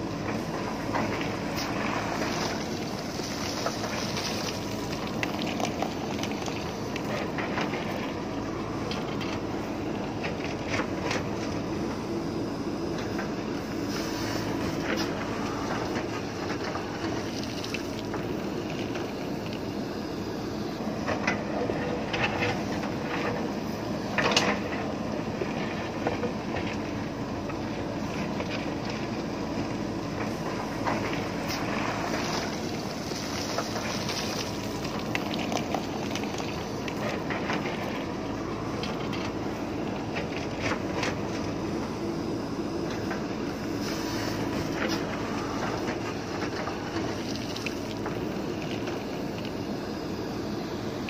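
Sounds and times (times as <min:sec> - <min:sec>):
diesel engine running under load: 0:00.0 - 0:51.0.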